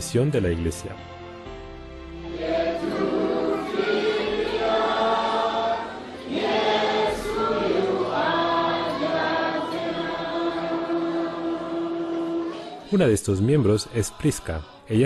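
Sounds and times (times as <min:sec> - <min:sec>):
choir singing a hymn: 0:01.9 - 0:15.0.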